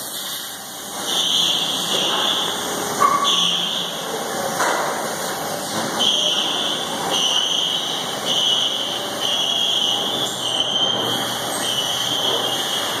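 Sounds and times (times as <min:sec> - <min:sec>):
steady background noise: 0:00.0 - 0:13.0
high-pitched electronic beeping: 0:01.0 - 0:04.0, 0:06.0 - 0:13.0.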